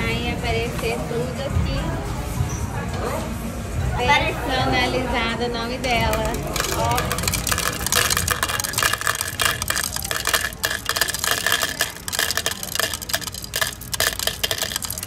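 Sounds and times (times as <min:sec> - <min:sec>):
candies clattering into a cup: 0:05.9 - 0:15.0.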